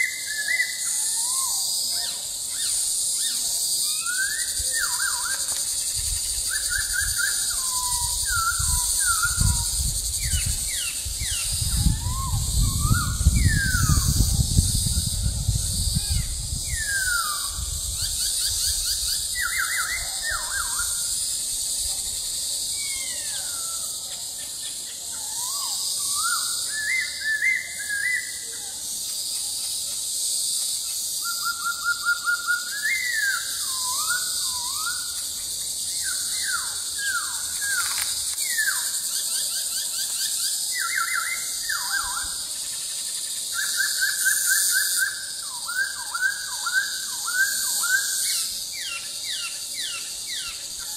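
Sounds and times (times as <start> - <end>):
bird singing whistled phrases: 0.0 - 5.6, 6.4 - 15.1, 15.8 - 21.2, 25.2 - 28.6, 31.2 - 35.2, 39.8 - 42.4.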